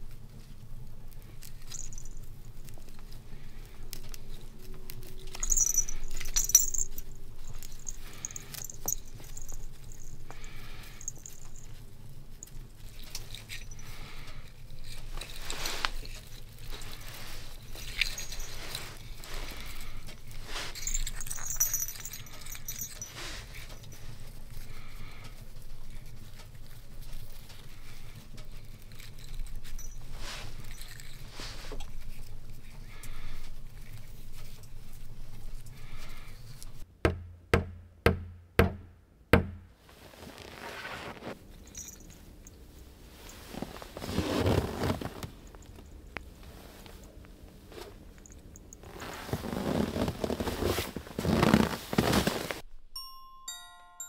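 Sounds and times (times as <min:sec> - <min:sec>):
twine and needles rustling: 0:00.0 - 0:36.9, 0:39.8 - 0:53.8
low steady hum: 0:00.0 - 0:40.6, 0:41.2 - 0:54.0
small bell jingling: 0:01.4 - 0:02.7, 0:05.1 - 0:24.8, 0:28.6 - 0:32.3, 0:41.6 - 0:43.6, 0:52.9 - 0:54.0.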